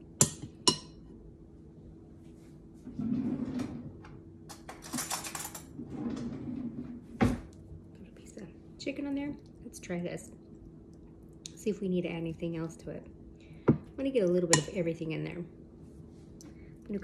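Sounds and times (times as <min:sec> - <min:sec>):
kitchen handling and rustling: 0:02.8 - 0:07.5.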